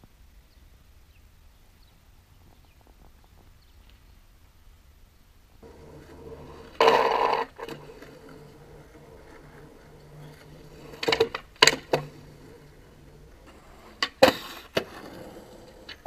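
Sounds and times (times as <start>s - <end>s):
skateboard hitting concrete curb: 5.6s - 16.0s
skateboard scraping ledge: 5.6s - 16.0s.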